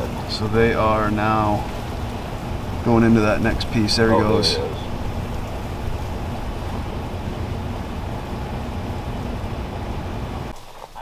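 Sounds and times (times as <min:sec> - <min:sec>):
wind buffeting microphone: 0:00.0 - 0:10.5.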